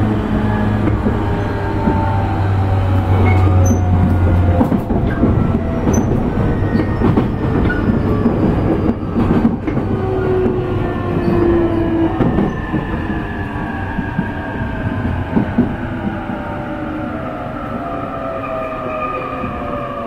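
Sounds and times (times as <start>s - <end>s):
train wheels rumbling on rails: 0.0s - 20.0s
rail-joint clicks: 2.9s - 13.2s.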